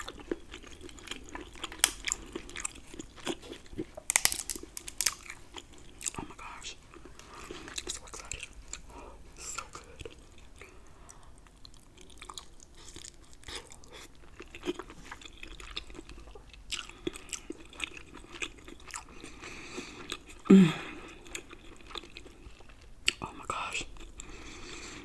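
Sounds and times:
chewing with mouth clicks: 0.0s - 24.4s.

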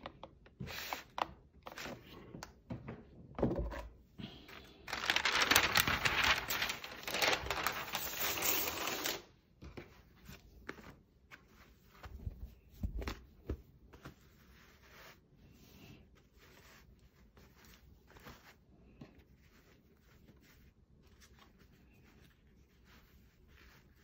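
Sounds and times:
plastic sheet crinkling and tearing: 4.8s - 9.3s.

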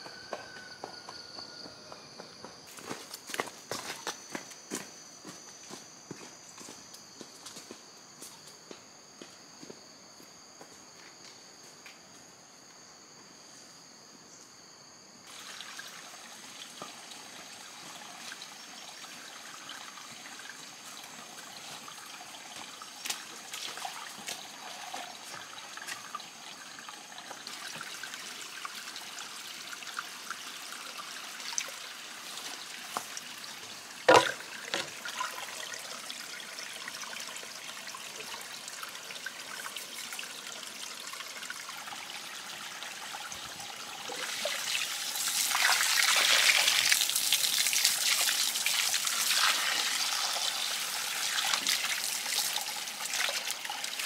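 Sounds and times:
water trickling: 15.3s - 54.0s.

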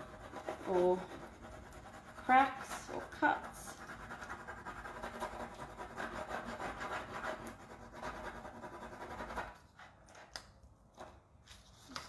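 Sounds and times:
fingers rubbing transfer sheet: 0.0s - 9.6s.

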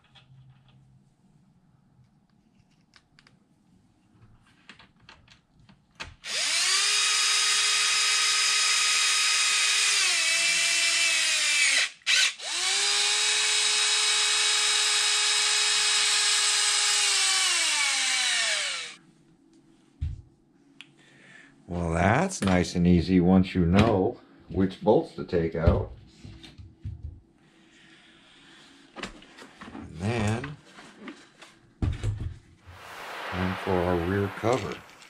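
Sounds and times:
cordless drill whining: 6.2s - 19.0s.

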